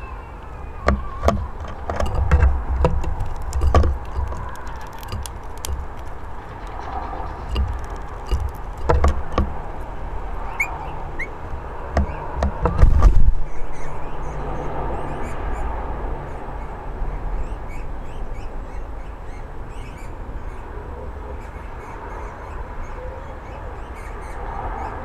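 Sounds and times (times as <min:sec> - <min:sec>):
birds tapping on wooden table: 0:00.8 - 0:09.7, 0:11.8 - 0:13.2
low rumble: 0:01.0 - 0:14.9
bird chirps: 0:03.3 - 0:08.9, 0:10.4 - 0:12.4.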